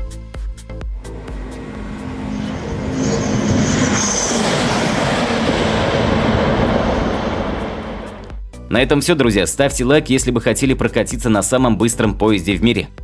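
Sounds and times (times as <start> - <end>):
train passing at high speed: 0.7 - 8.4.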